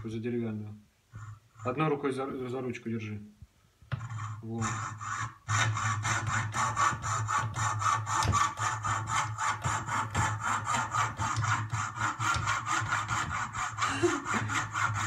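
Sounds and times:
fretsaw cutting wood: 0:03.9 - 0:15.0.

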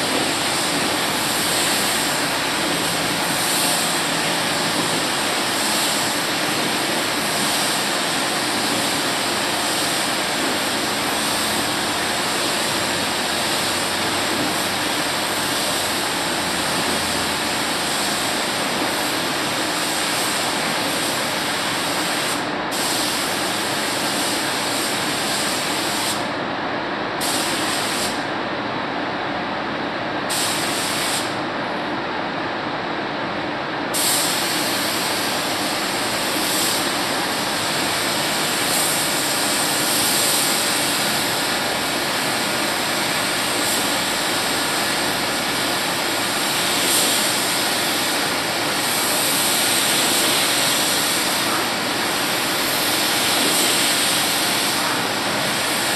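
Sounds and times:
paint spray gun hissing: 0:00.0 - 0:16.0, 0:34.0 - 0:55.9
steady rush of air: 0:00.0 - 0:55.9.

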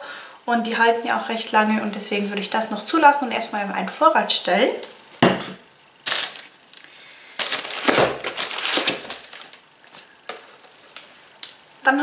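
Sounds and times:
cardboard and paper rustling: 0:06.1 - 0:06.7, 0:07.4 - 0:11.8.

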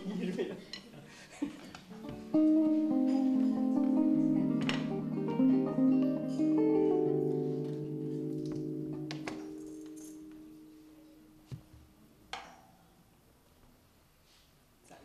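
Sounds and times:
plucked zither strings ringing: 0:02.3 - 0:11.7.

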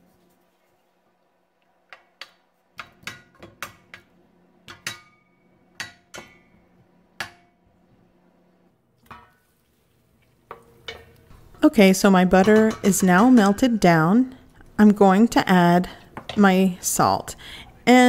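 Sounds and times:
wooden spoon knocking on metal pot: 0:04.7 - 0:06.5, 0:07.2 - 0:07.6.

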